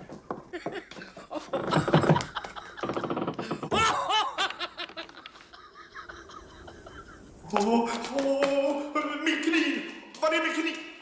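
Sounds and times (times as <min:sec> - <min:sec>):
man laughing heartily: 0:00.5 - 0:07.5.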